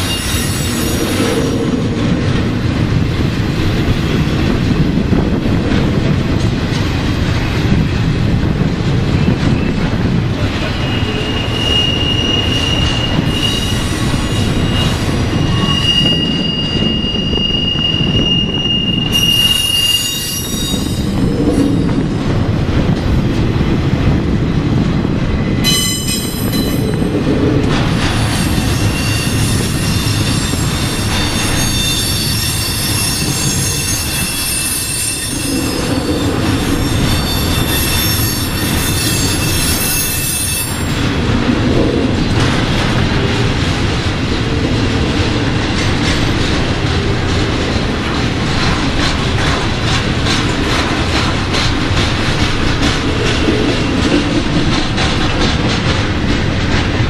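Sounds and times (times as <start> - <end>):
shrill wheel squeal: 0.0 - 1.7, 10.6 - 21.8, 28.1 - 41.0
steel wheels rumbling on rail: 0.0 - 57.0
wheels clacking over rail joints: 25.6 - 57.0.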